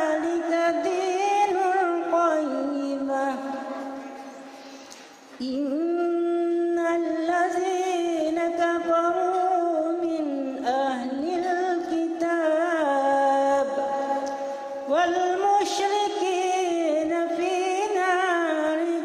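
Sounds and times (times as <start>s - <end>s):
woman reciting melodically: 0.0s - 19.0s.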